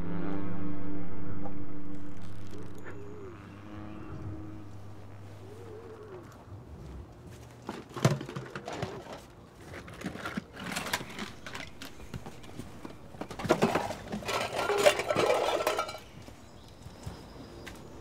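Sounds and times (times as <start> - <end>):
low wavering calls: 2.4 - 6.5
footsteps: 4.6 - 17.9.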